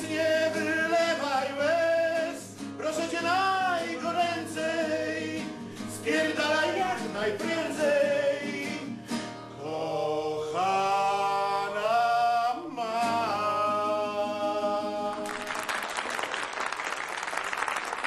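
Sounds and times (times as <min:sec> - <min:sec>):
person singing long notes: 0:09.6 - 0:15.5
applause: 0:15.1 - 0:18.0.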